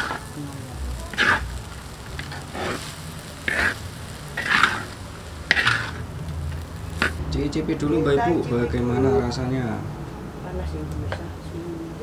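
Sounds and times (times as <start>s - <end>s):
spatula scraping a wok: 0.0s - 0.4s, 1.0s - 7.2s
low frying sizzle: 0.0s - 12.0s.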